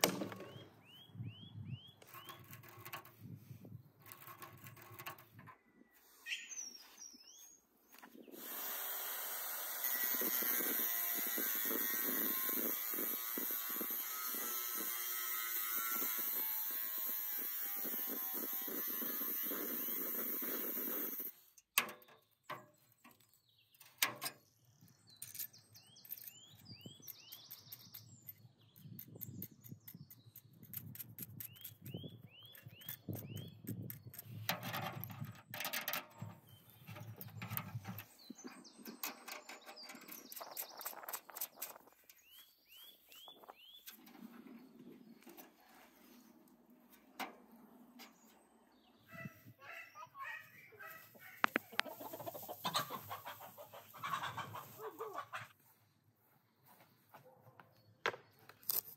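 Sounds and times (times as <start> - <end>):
angle grinder cutting metal: 8.4 - 21.3.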